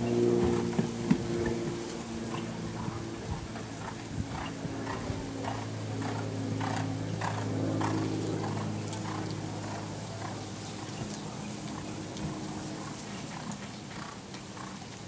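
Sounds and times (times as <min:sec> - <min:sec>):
steady low hum: 0:00.0 - 0:15.0
horse hoofbeats on sand: 0:00.2 - 0:10.4.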